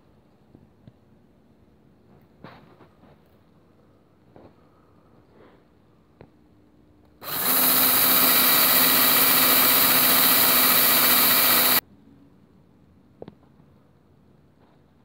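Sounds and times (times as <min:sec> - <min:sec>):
drill motor hum: 0:07.2 - 0:11.8.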